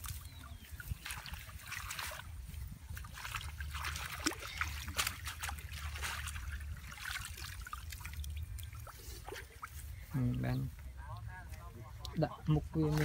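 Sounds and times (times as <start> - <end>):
splashes in muddy water: 0.0 - 9.8
steady low rumble: 0.0 - 13.0.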